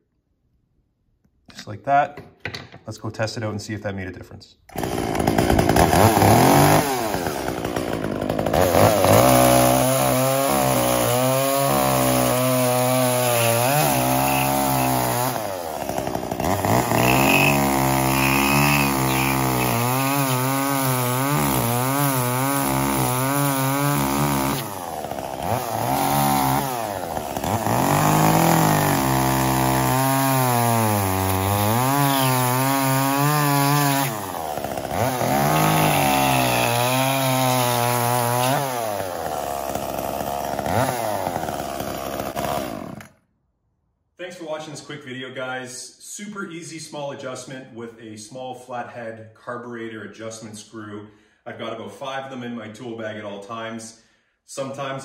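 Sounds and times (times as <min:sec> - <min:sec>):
chainsaw cutting into stump: 0:04.7 - 0:43.2.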